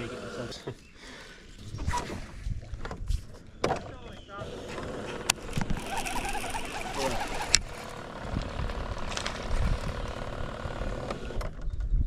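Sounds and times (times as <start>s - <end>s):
fishing reel whirring: 5.2s - 11.0s.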